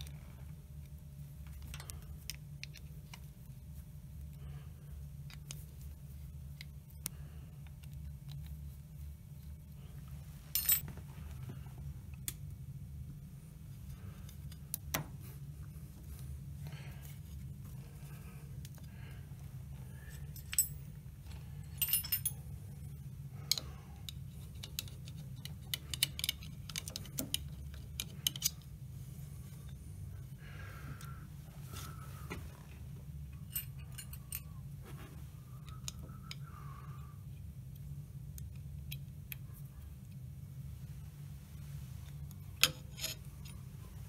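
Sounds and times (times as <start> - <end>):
steady low hum: 0.0 - 44.0
spanner and steel parts clinking: 10.5 - 10.9, 20.0 - 22.6, 24.4 - 28.7, 33.3 - 34.6, 42.6 - 43.7.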